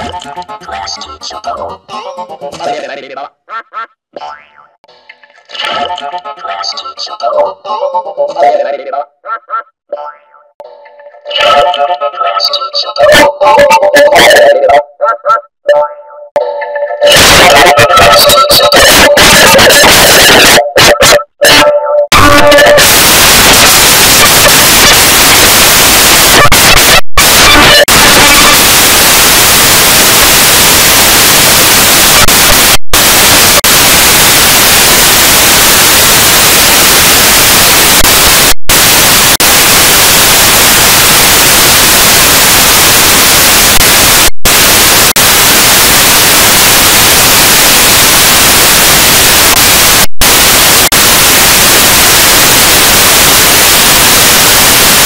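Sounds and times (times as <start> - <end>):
harsh distorted static: 0.0 - 0.6, 11.3 - 14.8, 17.0 - 55.0.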